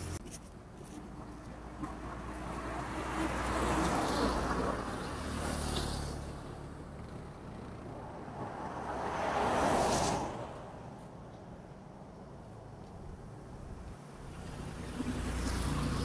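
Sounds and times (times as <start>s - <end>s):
road vehicle passing by: 0.9s - 16.0s.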